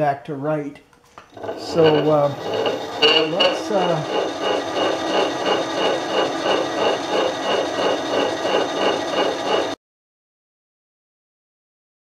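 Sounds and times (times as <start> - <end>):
end mill cutting steel: 1.3 - 9.8.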